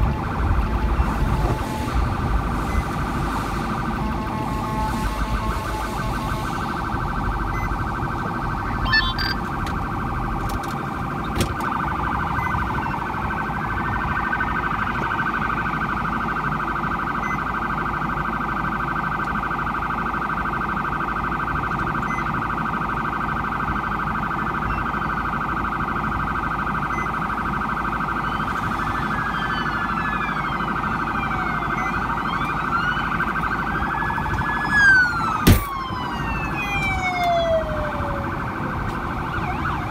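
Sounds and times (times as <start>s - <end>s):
police siren fast warble: 0.0s - 39.9s
siren slow wail: 0.0s - 39.9s.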